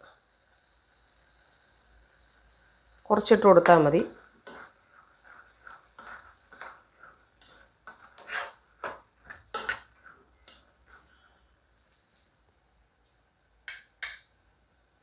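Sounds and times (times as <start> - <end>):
spatula scraping a pot: 3.9 - 12.0.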